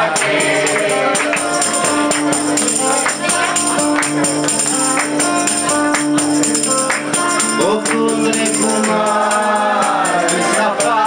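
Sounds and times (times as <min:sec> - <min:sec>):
strummed acoustic guitar: 0:00.0 - 0:11.0
tambourine jingles: 0:00.0 - 0:11.0
person singing: 0:07.3 - 0:11.0.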